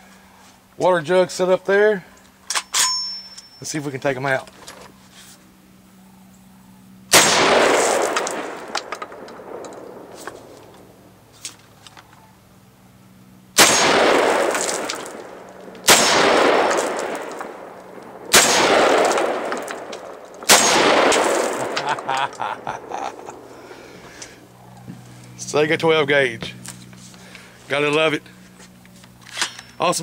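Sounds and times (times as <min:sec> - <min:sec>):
shotgun shots: 0:07.1 - 0:10.6, 0:13.6 - 0:23.4.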